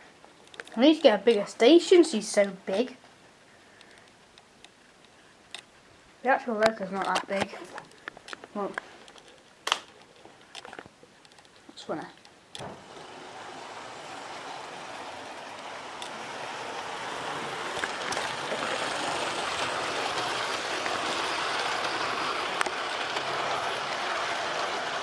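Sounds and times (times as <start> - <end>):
model train whirring on track: 12.6 - 25.0.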